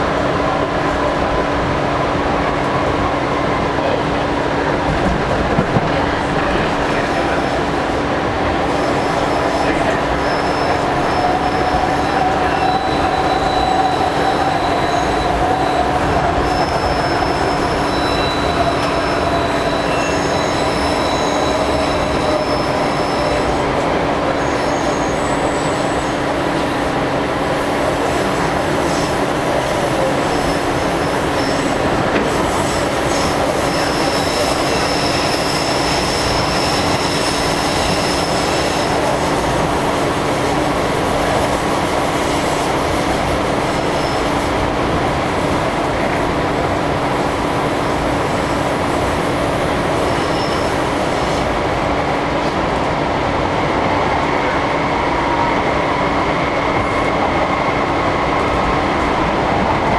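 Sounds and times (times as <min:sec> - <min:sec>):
wheels rumbling on rail: 0:00.0 - 0:59.9
high-pitched wheel squeal: 0:10.2 - 0:23.6, 0:50.1 - 0:50.8.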